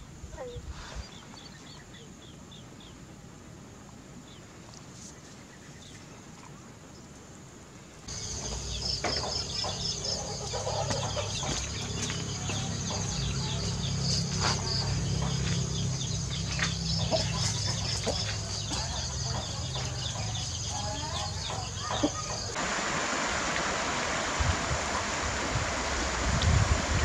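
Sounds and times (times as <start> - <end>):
insects trilling: 8.1 - 22.6.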